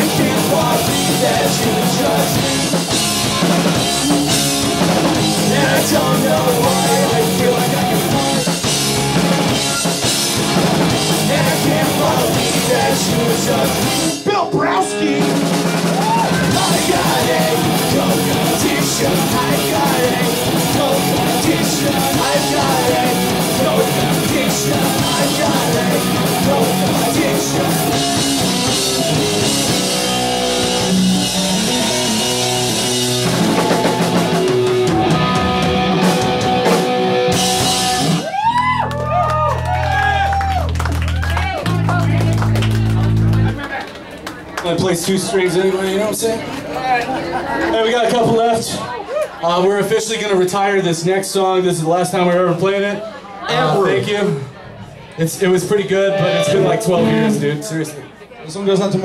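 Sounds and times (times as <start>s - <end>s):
punk rock band playing live: 0.0s - 39.0s, 56.0s - 57.6s.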